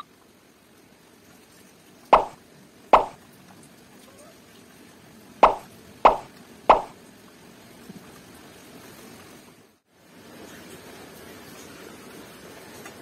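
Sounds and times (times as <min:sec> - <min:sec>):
short sharp plops: 0:02.2 - 0:02.4, 0:03.0 - 0:03.2, 0:05.4 - 0:06.9.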